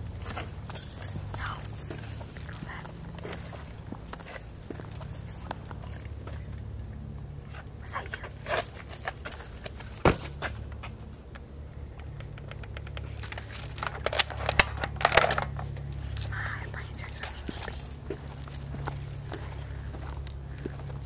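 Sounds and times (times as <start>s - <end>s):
rustles: 0.0s - 21.0s
footsteps scuffing on concrete: 0.1s - 6.4s, 17.0s - 21.0s.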